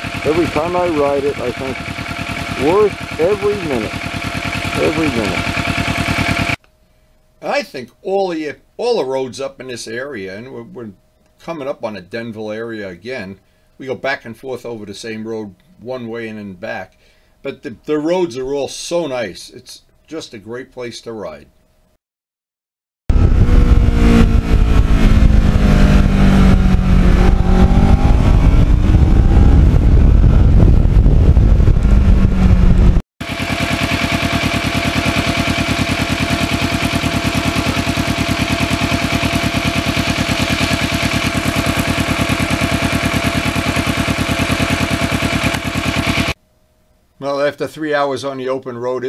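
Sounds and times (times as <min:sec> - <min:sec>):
motorcycle engine: 0:00.0 - 0:06.6, 0:23.1 - 0:46.4
motorcycle engine idling: 0:00.0 - 0:06.6, 0:33.2 - 0:46.4
wind and road noise: 0:23.1 - 0:33.0.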